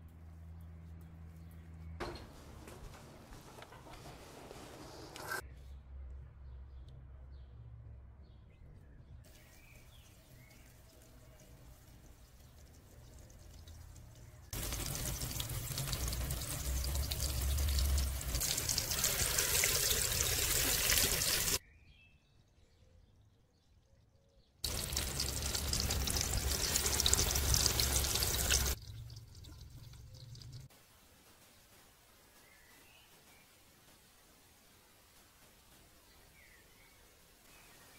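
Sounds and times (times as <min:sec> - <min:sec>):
patties sizzling in hot oil: 0:09.3 - 0:21.6, 0:24.6 - 0:31.7.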